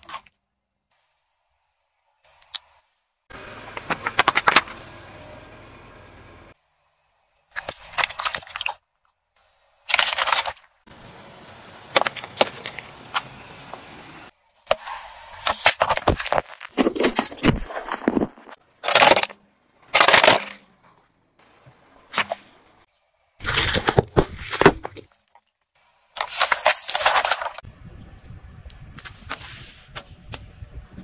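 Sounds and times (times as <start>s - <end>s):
car tyre crushing objects: 3.3s - 5.0s, 7.5s - 8.9s, 9.8s - 22.8s, 23.4s - 25.3s, 26.2s - 27.7s.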